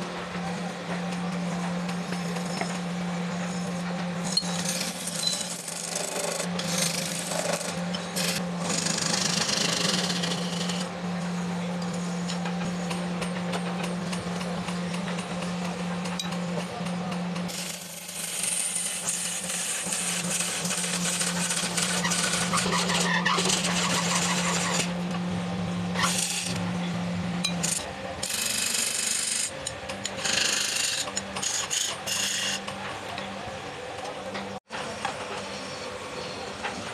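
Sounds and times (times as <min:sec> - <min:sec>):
lathe motor humming: 0:00.0 - 0:36.9
chisel scraping spinning wood: 0:01.1 - 0:10.9, 0:17.4 - 0:25.0, 0:26.0 - 0:26.6, 0:27.6 - 0:32.8.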